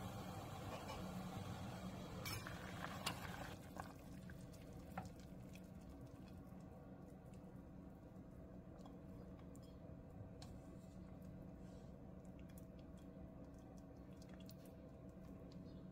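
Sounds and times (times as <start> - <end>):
water boiling in a pot: 0.0 - 9.1.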